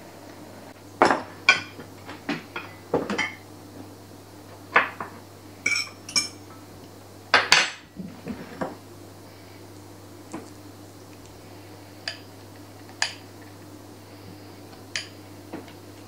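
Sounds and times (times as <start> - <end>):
utensils clinking against glass bowl: 5.7 - 6.4.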